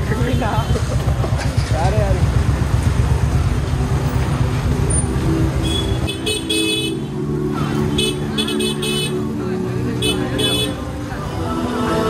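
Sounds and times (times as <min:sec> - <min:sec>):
traffic engine rumble: 0:00.0 - 0:12.0
vehicle horns honking: 0:05.6 - 0:07.2, 0:07.8 - 0:09.3, 0:10.0 - 0:10.8.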